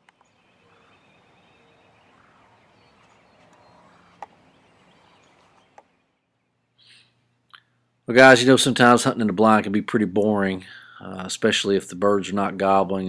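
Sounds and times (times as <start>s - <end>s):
distant bird calls: 0.0s - 8.0s.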